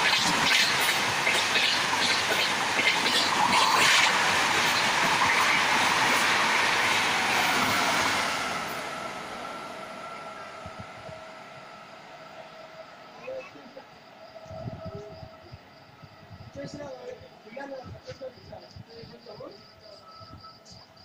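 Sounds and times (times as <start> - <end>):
train clattering over rails: 0.0 - 9.0.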